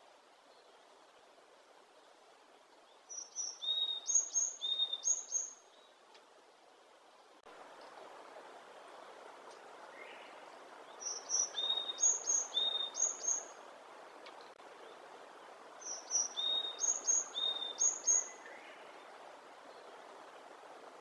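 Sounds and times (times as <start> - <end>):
bird singing whistled notes: 3.1 - 5.9, 10.9 - 13.6, 15.8 - 18.8.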